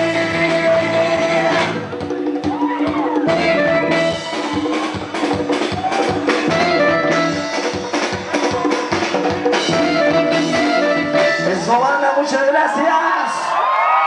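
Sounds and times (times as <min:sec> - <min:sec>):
rock band playing live: 0:00.0 - 0:12.6
crowd cheering and whooping: 0:01.3 - 0:09.3, 0:11.5 - 0:14.0.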